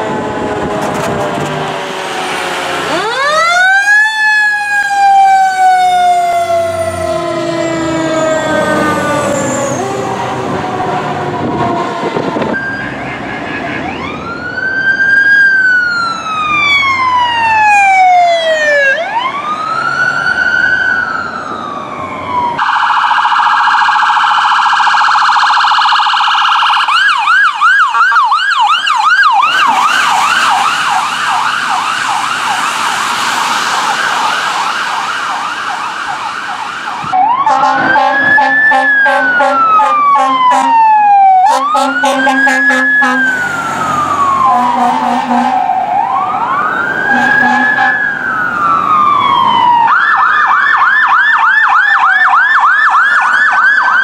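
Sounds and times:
siren wailing: 0.0 - 54.0
siren fast yelp: 2.9 - 10.4, 21.4 - 54.0.

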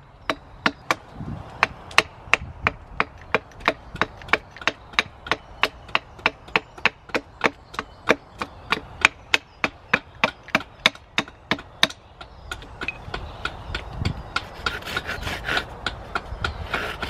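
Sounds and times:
wood being chopped: 0.3 - 17.0.

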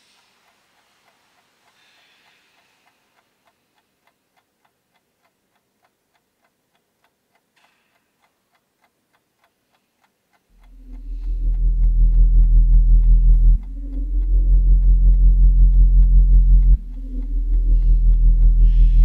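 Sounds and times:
clock ticking: 0.0 - 19.0
loud low drone: 10.6 - 19.0.

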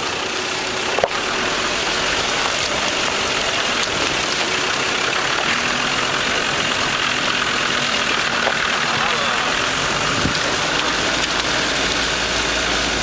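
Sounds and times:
vehicle engine running at low speed: 0.0 - 13.0.

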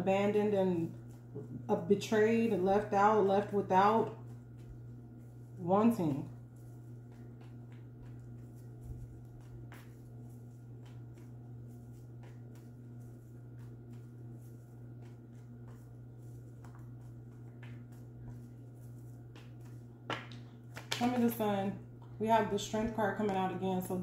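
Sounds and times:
steady low hum: 0.0 - 24.0
cards shuffling clicks and rustles: 7.0 - 13.0, 15.0 - 21.4.

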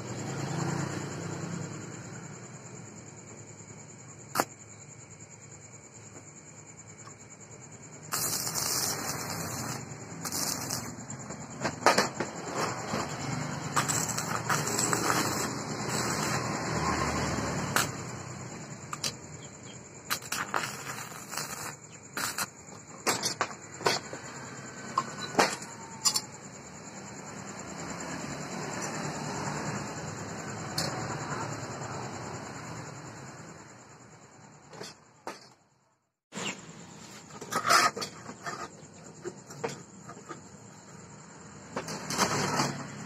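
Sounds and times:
welding arc sizzling: 8.0 - 22.6.

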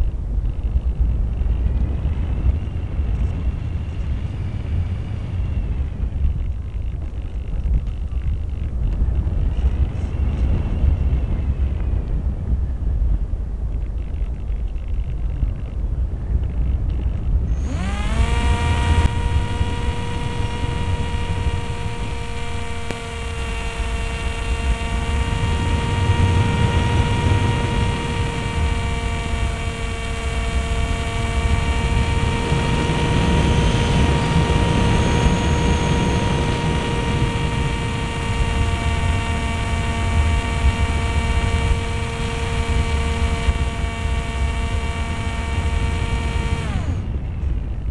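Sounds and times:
electric motor and propeller whine: 0.0 - 47.9
wind rushing over microphone: 0.0 - 47.9.

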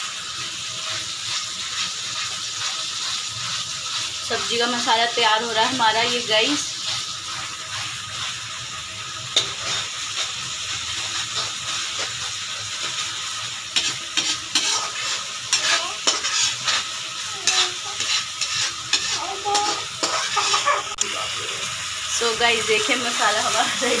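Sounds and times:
paste sizzling in oil: 0.0 - 24.0
spatula scraping and tapping pan: 9.3 - 13.1, 13.7 - 21.0.

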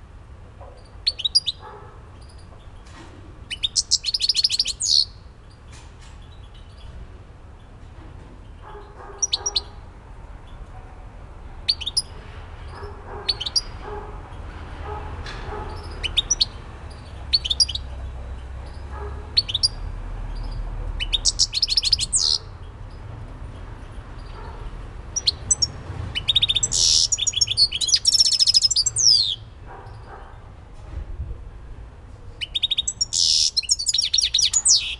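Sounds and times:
finch singing: 0.8 - 6.9, 8.5 - 9.8, 11.6 - 14.0, 15.3 - 23.1, 24.0 - 30.4, 32.3 - 34.9.

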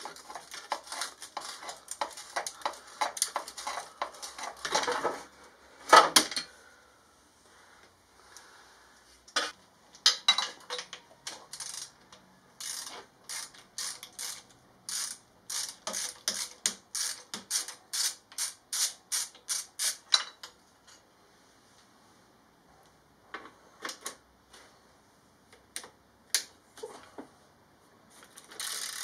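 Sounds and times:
ratchet wrench clicking: 11.5 - 12.0, 12.6 - 20.1, 28.6 - 29.0.

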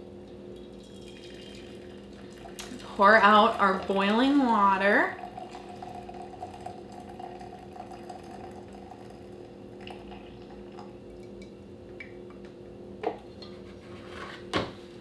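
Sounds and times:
coffee machine humming: 0.0 - 13.8
water running into mug: 0.6 - 11.5.

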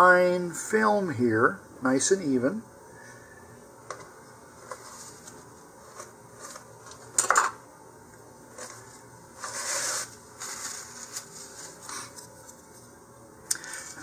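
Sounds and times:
rubbing scrape: 9.4 - 12.2.

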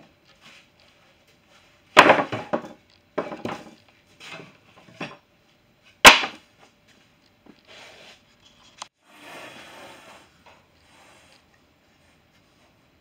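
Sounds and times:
plywood panels knocking and slapping: 2.0 - 3.8, 6.1 - 6.4.

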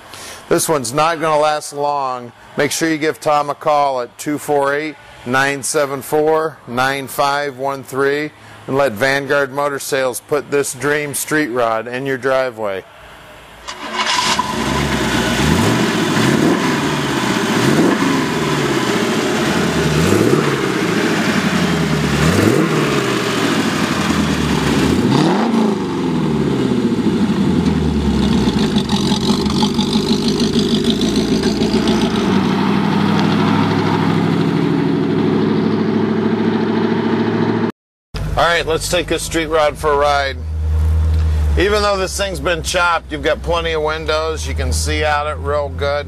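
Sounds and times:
car engine idling: 13.6 - 37.6, 38.2 - 46.0
car engine revving: 13.7 - 46.0.

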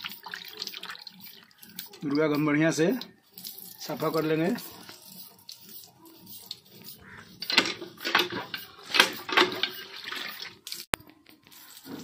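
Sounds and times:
water splashing in a bowl: 0.0 - 5.6, 9.1 - 10.9
hand pump handle strokes: 0.0 - 12.0.

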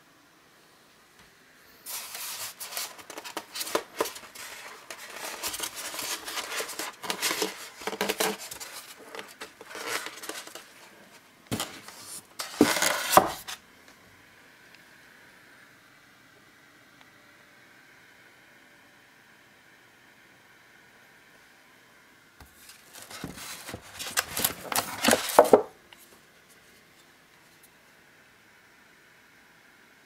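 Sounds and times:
faint hiss: 0.0 - 9.6
styrofoam rubbing and scraping: 1.8 - 13.6, 22.6 - 25.6
plastic sheet rustling: 1.9 - 13.6, 22.6 - 25.7.

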